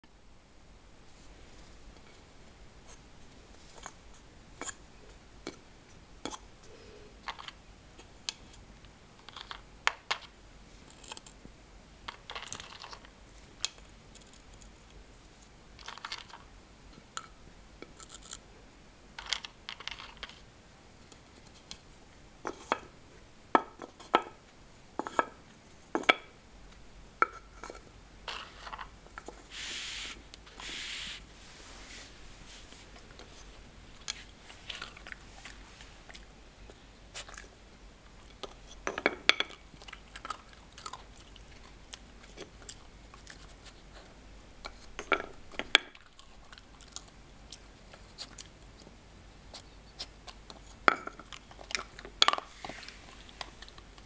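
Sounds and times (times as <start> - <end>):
wooden pegs clicking and knocking: 19.2 - 20.4
short rubbing sounds: 29.5 - 33.0.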